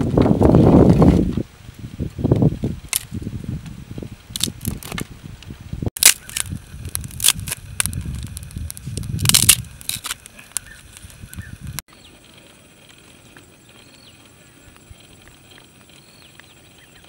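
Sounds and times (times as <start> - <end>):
stick fire crackling: 0.0 - 17.0
dry twigs snapping: 4.3 - 5.1, 6.0 - 11.8.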